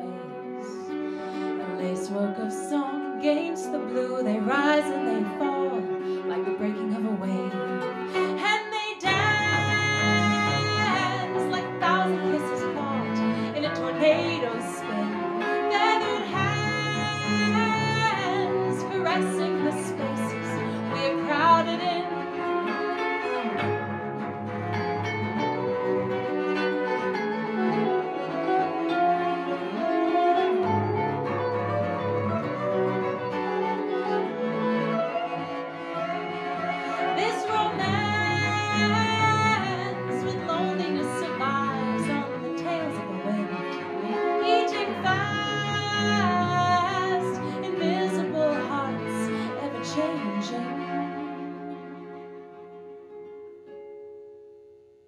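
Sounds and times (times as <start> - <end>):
baritone ukulele: 0.0 - 52.2
bowed cello: 0.0 - 53.8
electric guitar: 0.0 - 54.4
high wordless vocals: 1.6 - 22.2, 44.4 - 51.0.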